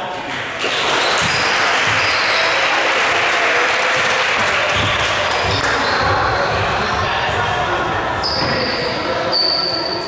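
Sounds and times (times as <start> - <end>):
crowd and court noise: 0.0 - 10.0
basketball bouncing on gym floor: 4.7 - 6.7.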